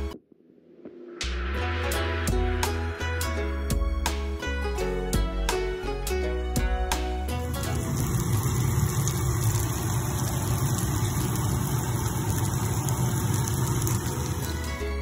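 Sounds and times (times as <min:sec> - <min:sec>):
fish sizzling in a pan: 0:07.6 - 0:15.0.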